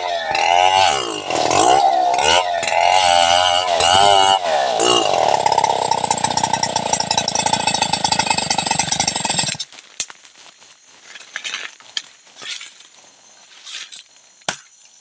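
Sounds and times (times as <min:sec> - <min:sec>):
chainsaw cutting log: 0:00.0 - 0:09.7.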